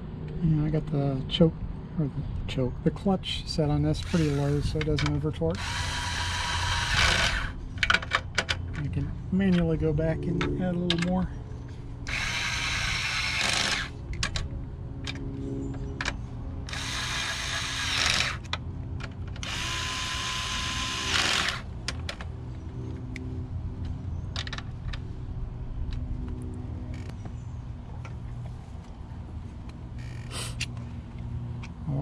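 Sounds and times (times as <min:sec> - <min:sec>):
cordless driver spinning: 0:04.0 - 0:08.0, 0:12.1 - 0:13.9, 0:16.7 - 0:18.5, 0:19.4 - 0:21.7.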